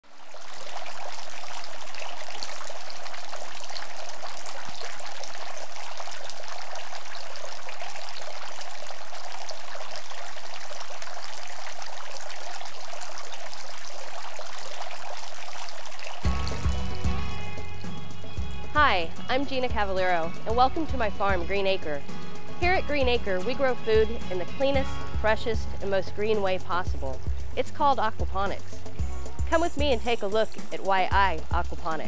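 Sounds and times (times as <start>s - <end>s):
water pouring and splashing: 0.0s - 32.0s
music: 15.9s - 32.0s.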